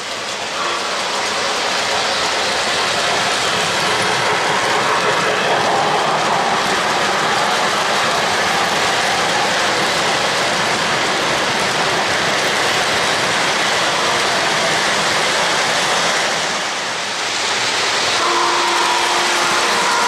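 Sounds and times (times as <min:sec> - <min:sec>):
model train cars rolling on track: 0:00.0 - 0:20.0
model locomotive whistle: 0:00.6 - 0:02.4, 0:18.2 - 0:20.0.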